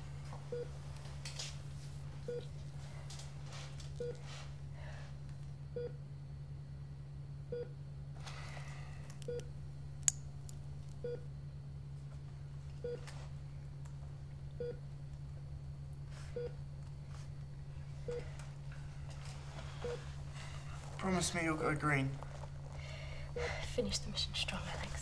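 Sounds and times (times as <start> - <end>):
steady low hum: 0.0 - 25.0
sharp click: 9.1 - 11.0.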